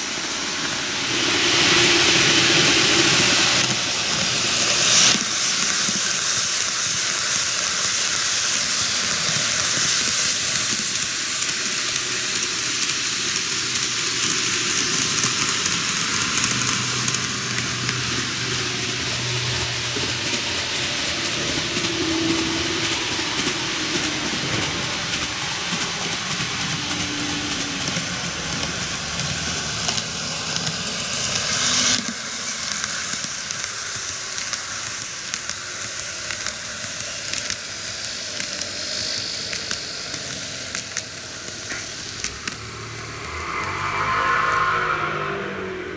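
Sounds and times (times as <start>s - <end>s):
model train running on rails: 0.0s - 45.9s
low hum: 0.1s - 5.0s, 41.7s - 45.9s.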